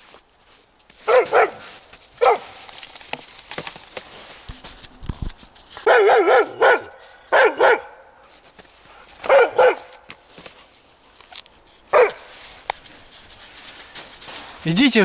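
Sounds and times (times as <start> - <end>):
dog barking: 1.0 - 2.6, 5.8 - 8.1, 9.2 - 10.1, 11.9 - 12.3.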